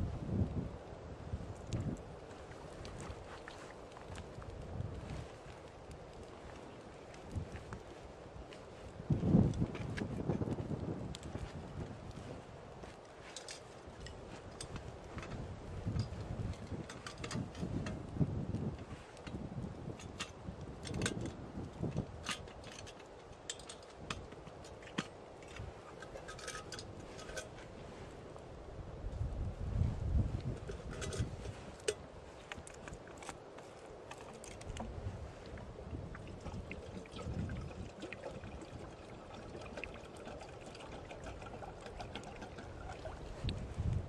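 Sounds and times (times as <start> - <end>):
wind rumble on microphone: 0.0 - 44.0
twigs crackling in stove: 1.3 - 28.5, 30.3 - 44.0
liquid poured from a flask: 36.2 - 43.3.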